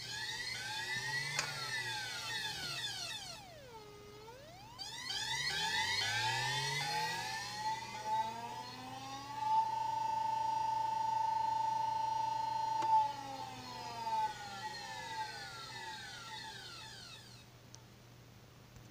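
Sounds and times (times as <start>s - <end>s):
electric motor whining: 0.0s - 17.5s
click: 1.3s - 1.6s, 12.7s - 13.0s.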